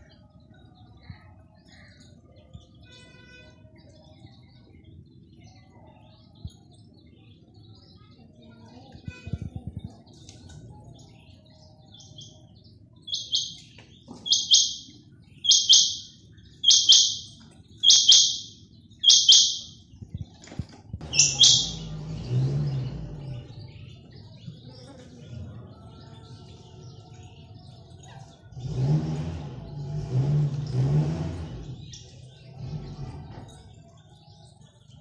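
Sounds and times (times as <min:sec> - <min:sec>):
quail calling: 0:13.1 - 0:19.8, 0:21.0 - 0:21.8.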